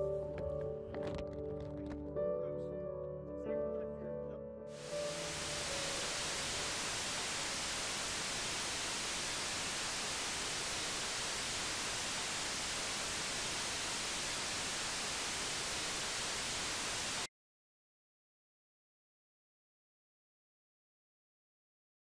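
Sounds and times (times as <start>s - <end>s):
static hiss: 4.7s - 17.3s.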